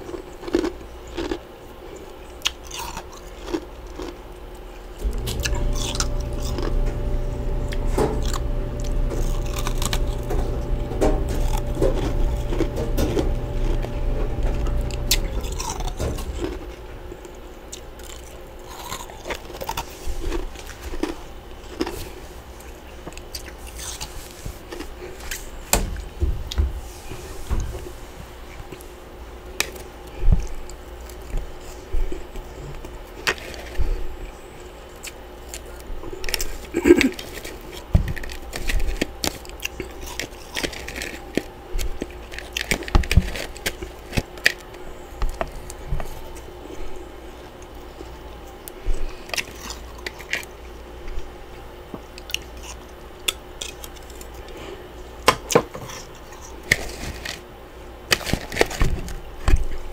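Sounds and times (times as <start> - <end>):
frost crunching and scraping: 0.0 - 22.7, 35.5 - 46.5, 55.8 - 57.4
low thumps: 5.0 - 17.1.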